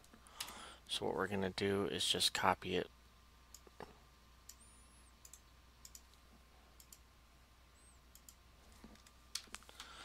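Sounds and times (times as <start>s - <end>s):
faint steady hum: 0.0s - 10.0s
computer keys clicking: 5.2s - 6.2s, 6.8s - 7.0s, 8.1s - 8.4s.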